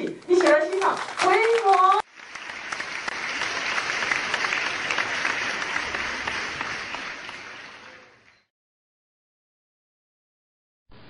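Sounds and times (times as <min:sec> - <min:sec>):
audience applauding: 0:00.3 - 0:08.5.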